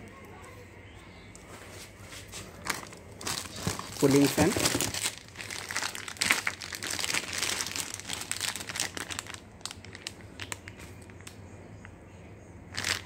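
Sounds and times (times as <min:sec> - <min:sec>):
plastic bags crinkling: 0:02.4 - 0:11.4, 0:12.7 - 0:13.0.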